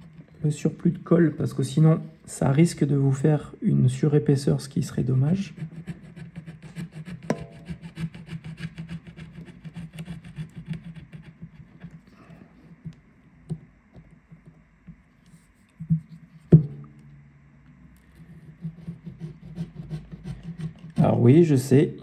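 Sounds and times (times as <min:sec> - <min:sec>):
spatula scraping adhesive: 0:05.4 - 0:12.2
sharp knock: 0:07.3 - 0:07.6.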